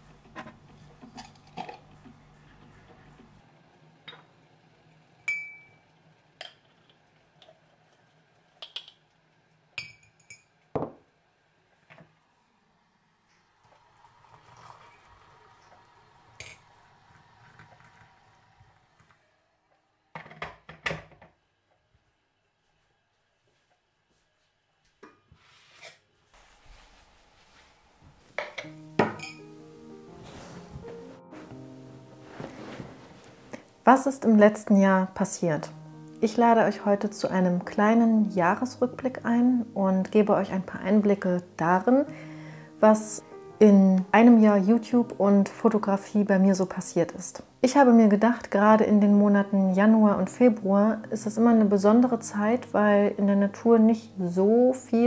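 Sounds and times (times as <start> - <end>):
glass and metal clinks: 9.8 - 10.5, 29.0 - 29.4
soft music with held notes: 28.2 - 55.0
crockery clinking on tabletop: 28.4 - 29.4.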